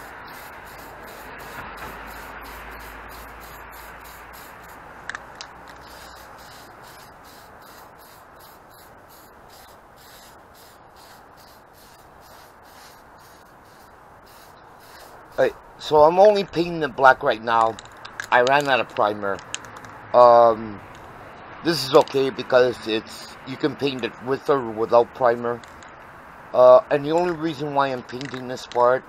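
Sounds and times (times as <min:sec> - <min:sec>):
spray can hissing: 0:00.0 - 0:04.8, 0:05.6 - 0:15.6.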